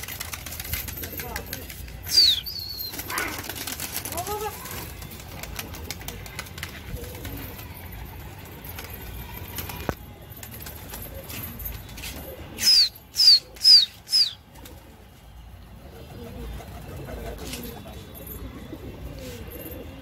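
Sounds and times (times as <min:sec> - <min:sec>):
pigeon wings flapping: 0:00.0 - 0:14.8
sharp falling whistles: 0:02.1 - 0:03.0, 0:12.6 - 0:14.4.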